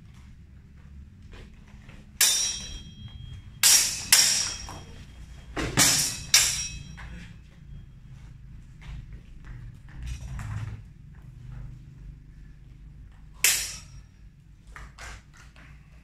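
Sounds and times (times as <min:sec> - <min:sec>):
sword blades clashing: 0:02.2 - 0:05.0, 0:05.6 - 0:07.4, 0:13.4 - 0:14.0.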